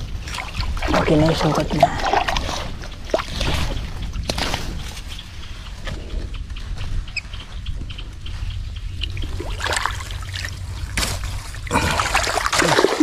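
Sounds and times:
water splashing: 0.0s - 4.6s, 9.2s - 13.0s
water trickling and sloshing: 0.0s - 5.3s, 8.9s - 13.0s
steady low rumble: 0.0s - 12.5s.

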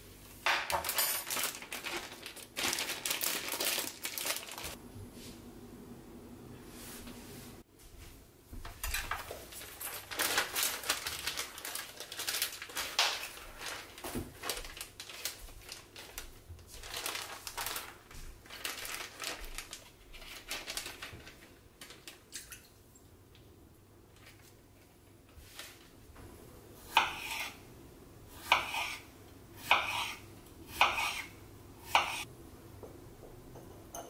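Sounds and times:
plastic food bag crinkling: 0.5s - 4.8s, 8.8s - 22.4s.

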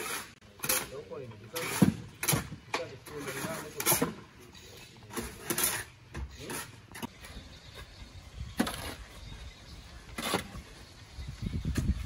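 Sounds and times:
shovel scraping soil on steel: 0.0s - 2.4s, 3.0s - 7.3s, 8.6s - 9.3s, 10.0s - 10.8s.

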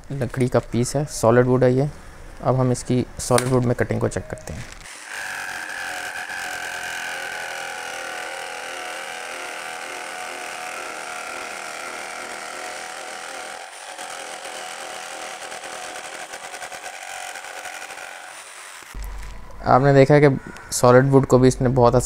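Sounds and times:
jigsaw sawing through wood: 4.9s - 19.0s.

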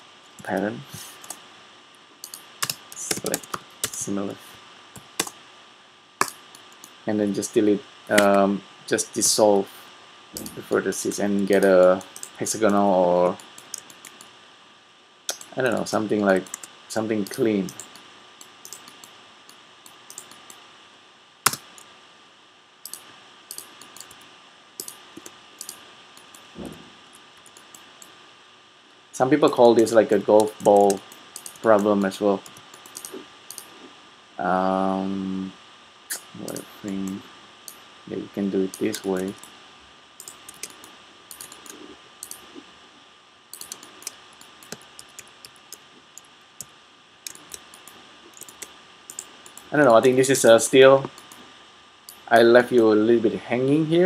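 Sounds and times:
faint background hiss: 0.0s - 54.0s
faint high whine: 0.0s - 54.0s
computer keyboard keystrokes: 2.2s - 4.1s, 6.2s - 6.9s, 13.4s - 14.3s, 15.3s - 15.5s, 16.4s - 20.6s, 21.5s - 21.8s, 22.9s - 24.2s, 24.8s - 26.5s, 30.4s - 33.7s, 38.7s - 39.5s, 40.2s - 42.4s, 43.5s - 46.7s, 47.3s - 49.7s
sharp click: 15.3s - 15.5s, 22.8s - 24.2s, 30.4s - 33.7s, 36.1s - 37.8s, 40.2s - 42.5s, 43.5s - 49.7s
short low thud: 26.6s - 27.0s.

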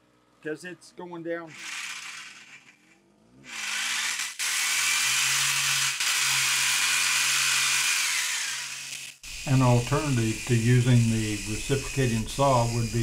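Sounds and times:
reciprocating saw buzzing: 1.5s - 13.0s.

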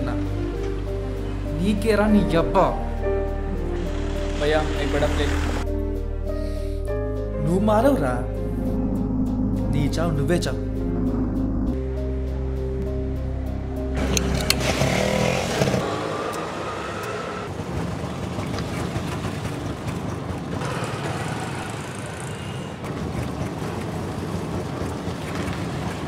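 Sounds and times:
street traffic noise: 3.4s - 5.7s, 12.3s - 26.0s
auto-rickshaw engine running: 3.7s - 5.7s, 14.0s - 26.0s.

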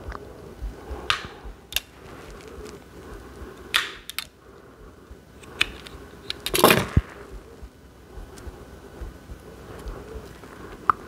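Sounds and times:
clicks of clasp and beads: 3.8s - 4.4s, 5.4s - 7.0s.

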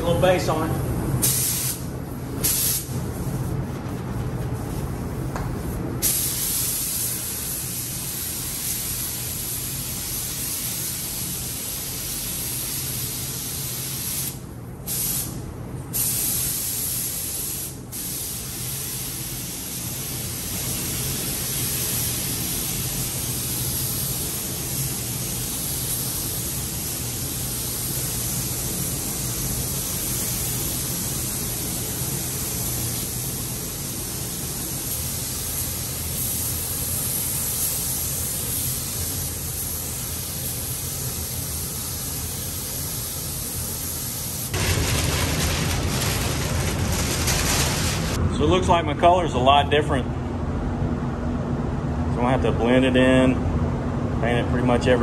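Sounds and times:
paint spray gun hissing: 1.2s - 1.8s, 2.4s - 2.9s, 6.0s - 15.3s, 16.0s - 44.6s.

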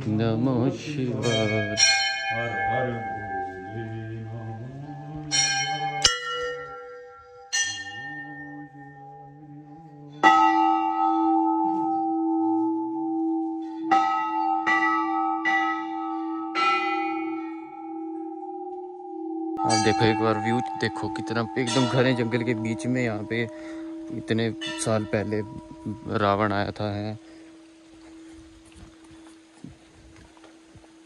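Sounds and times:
deeper bell ringing: 0.0s - 29.4s
brass bells struck by hand: 1.2s - 4.4s, 5.2s - 9.4s, 10.2s - 27.2s.

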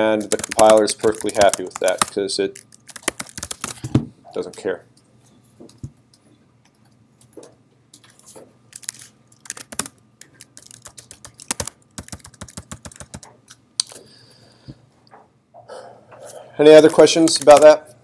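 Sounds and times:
keyboard typing clicks: 0.2s - 2.1s, 8.8s - 13.3s.

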